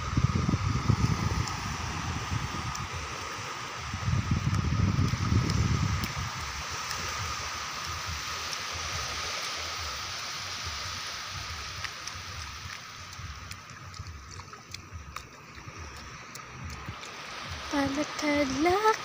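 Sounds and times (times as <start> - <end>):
gentle surf hissing: 0.0 - 19.0
faint ticks: 11.5 - 18.2.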